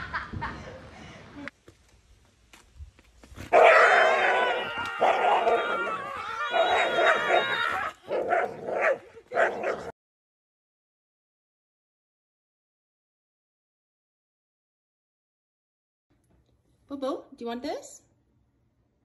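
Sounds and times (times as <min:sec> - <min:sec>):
dog barking and yowling: 0:03.5 - 0:09.9.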